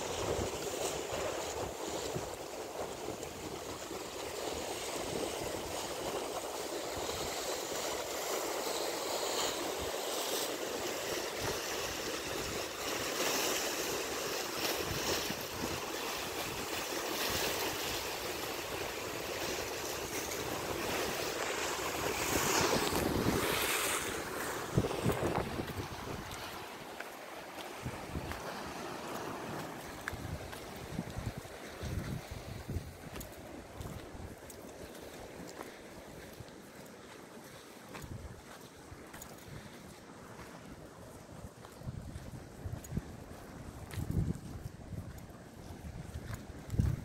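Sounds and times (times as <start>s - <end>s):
waves breaking on rocks: 0.0s - 47.0s
wind buffeting microphone: 19.7s - 26.9s, 27.8s - 28.7s, 29.6s - 34.5s, 41.5s - 47.0s.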